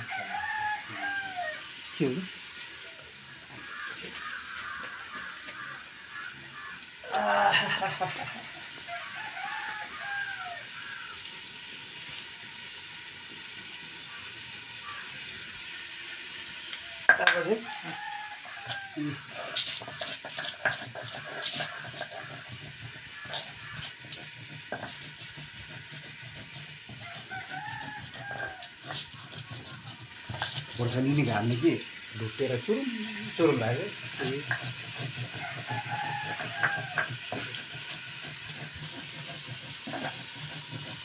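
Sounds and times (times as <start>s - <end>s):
stone roller crushing chillies: 17.1s - 32.6s, 33.3s - 41.0s
chicken calling: 27.0s - 29.6s.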